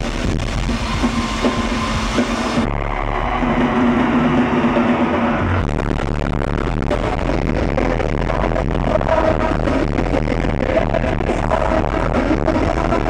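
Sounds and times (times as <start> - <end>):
live rock band playing loudly: 0.0 - 5.7.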